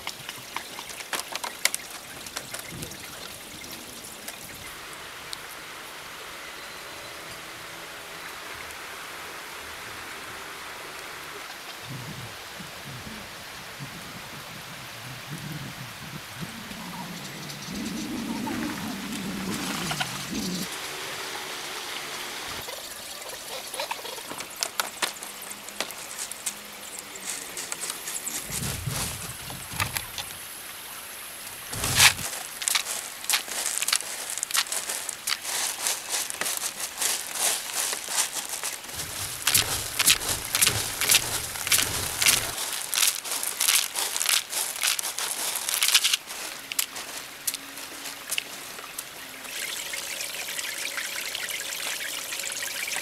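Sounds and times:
crinkling and rustling: 0.0 - 3.4, 24.2 - 30.4, 31.7 - 49.1
water pouring: 31.7 - 53.0.

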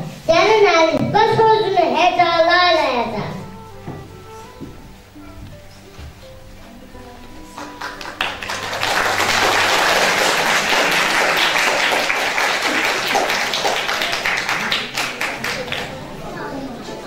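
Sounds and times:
music: 0.5 - 17.0
audience applauding: 7.5 - 16.5.

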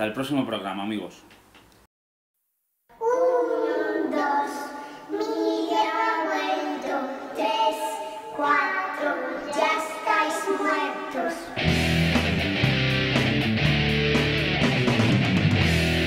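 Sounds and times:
high voice singing: 3.0 - 11.6.

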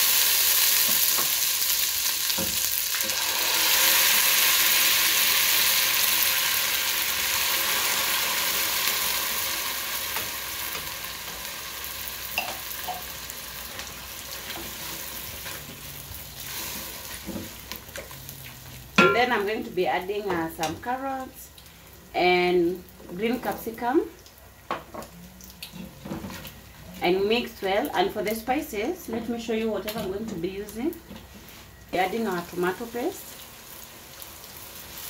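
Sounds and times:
food sizzling in hot oil: 0.0 - 21.6, 29.8 - 35.0.

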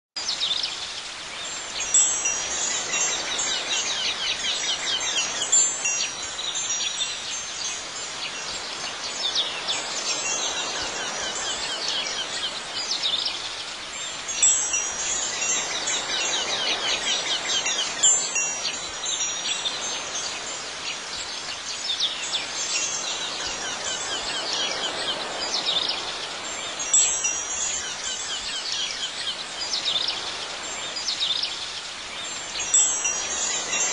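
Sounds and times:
wind chimes ringing: 1.4 - 13.3, 13.9 - 31.4, 32.2 - 33.9.

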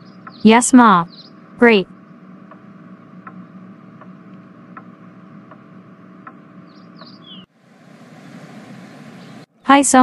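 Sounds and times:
light regular ticking: 0.0 - 7.3
steady low hum: 0.0 - 10.0.

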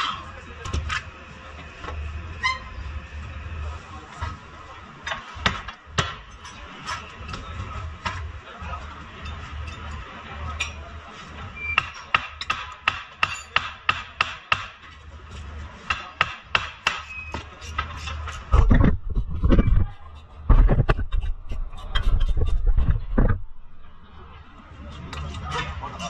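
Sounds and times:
steady low hum: 18.2 - 26.0.

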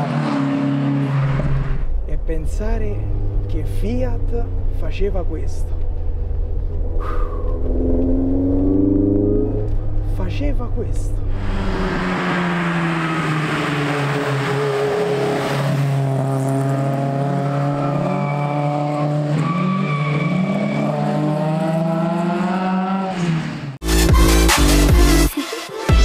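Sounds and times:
car engines running hard: 0.0 - 23.8.

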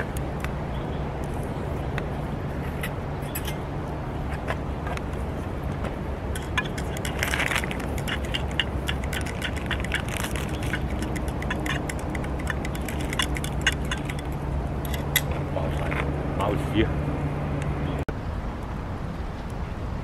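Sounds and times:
steady low rumble: 0.0 - 20.0
wood fire crackling: 5.0 - 15.3
utensils clinking on steel pots: 6.4 - 15.3.

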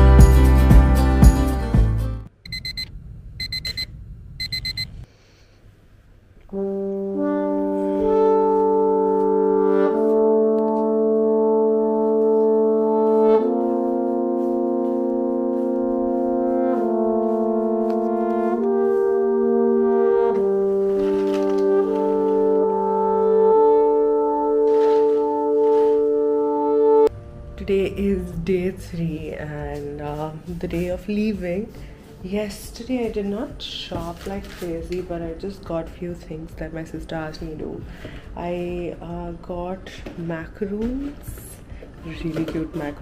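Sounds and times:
alarm beeping: 2.4 - 5.0
slow background music chords: 6.5 - 33.9.

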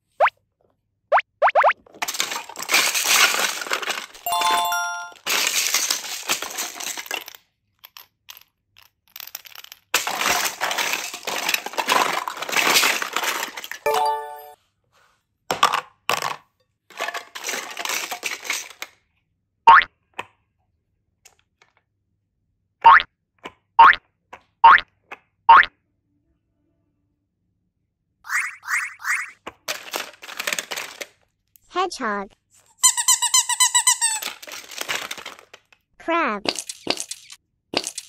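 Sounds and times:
plastic toys clattering in basket: 1.8 - 14.5, 15.5 - 19.0, 29.4 - 31.3, 32.8 - 35.8, 36.5 - 38.0
short chiming sound effect: 4.3 - 5.2, 13.9 - 14.6.

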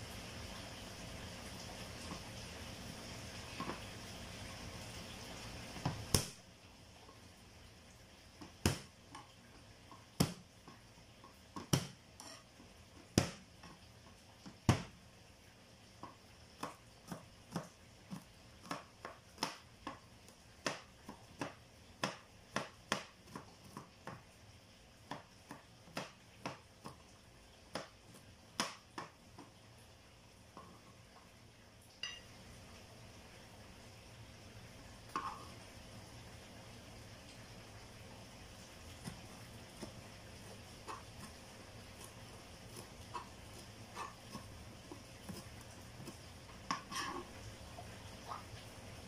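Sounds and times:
knife chopping on plastic board: 5.8 - 6.4, 8.4 - 8.9, 10.1 - 10.4, 11.6 - 12.0, 13.1 - 13.5, 16.0 - 20.0, 20.6 - 24.2, 25.1 - 27.0, 27.7 - 29.5, 39.0 - 47.1.

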